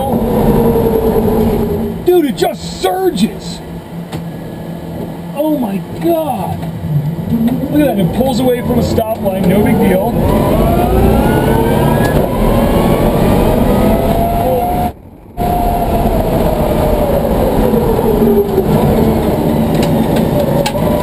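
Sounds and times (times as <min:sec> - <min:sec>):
road and tyre noise: 0:00.0 - 0:21.0
electric motor whining: 0:07.2 - 0:21.0.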